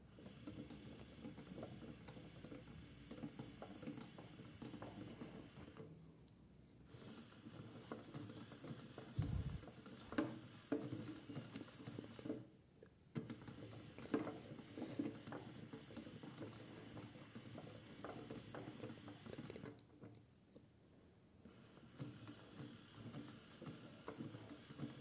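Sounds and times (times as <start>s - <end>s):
toy washing machine motor whine: 0.0s - 5.8s, 6.9s - 12.4s, 13.3s - 19.6s, 21.5s - 25.0s.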